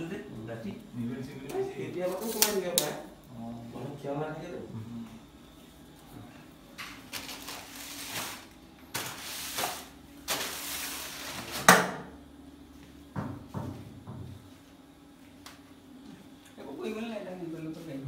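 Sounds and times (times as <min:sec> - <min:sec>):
objects scraping and rustling: 0:06.8 - 0:11.7.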